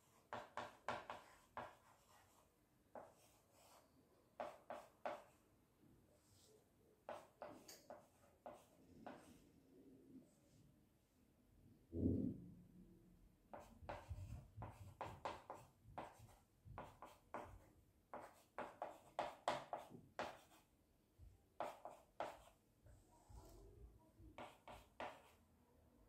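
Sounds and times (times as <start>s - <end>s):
chalk scratching on blackboard: 0.0s - 2.4s, 4.4s - 5.4s, 13.5s - 20.7s, 21.6s - 22.6s, 24.4s - 25.4s.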